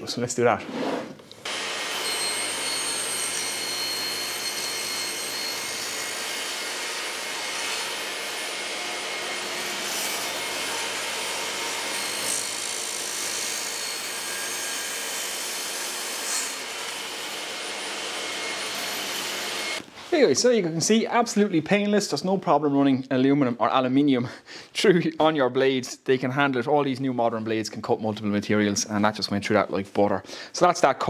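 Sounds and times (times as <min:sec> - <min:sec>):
table saw cutting: 0:01.4 - 0:19.8.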